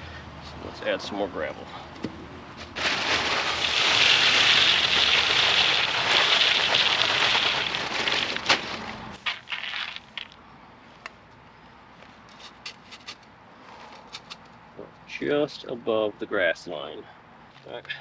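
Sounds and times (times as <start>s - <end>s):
gravel clicking spread by hand: 2.6s - 10.4s
gravel pouring into cardboard tube: 2.7s - 10.4s.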